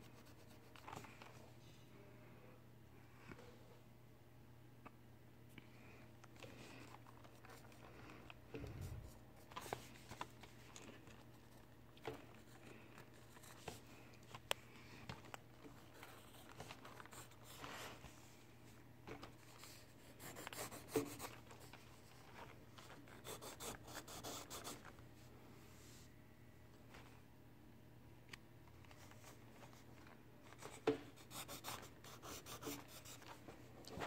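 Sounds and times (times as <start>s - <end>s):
steady low hum: 0.0s - 34.0s
pencil scratching on paper: 20.1s - 21.4s, 23.1s - 24.9s, 31.2s - 33.3s.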